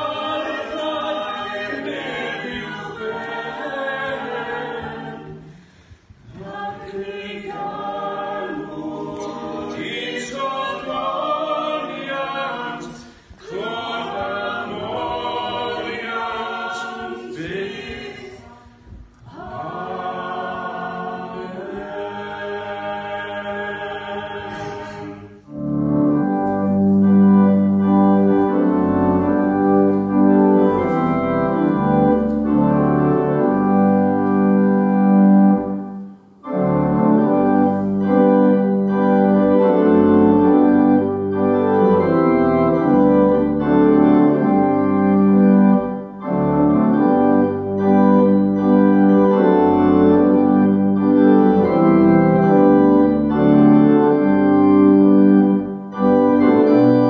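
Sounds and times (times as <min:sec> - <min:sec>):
organ playing hymn chords: 0:00.0 - 0:05.2, 0:25.4 - 0:57.0
voices singing unaccompanied: 0:00.0 - 0:05.6, 0:06.2 - 0:25.4.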